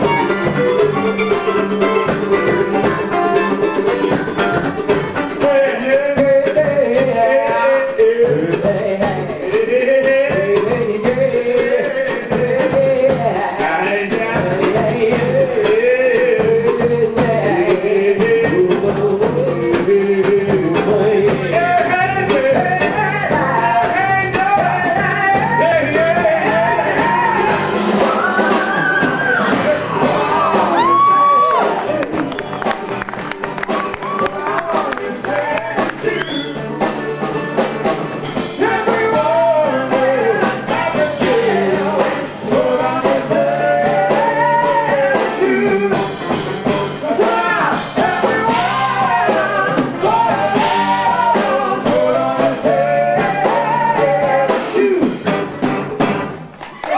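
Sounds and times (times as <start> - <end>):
live band playing: 0.0 - 56.9
man singing: 5.2 - 27.8, 34.0 - 37.3, 38.4 - 55.2.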